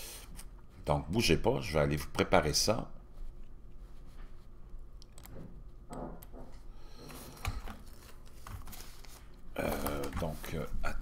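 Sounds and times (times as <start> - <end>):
small handling noises: 6.6 - 10.8
person muttering: 9.6 - 10.2.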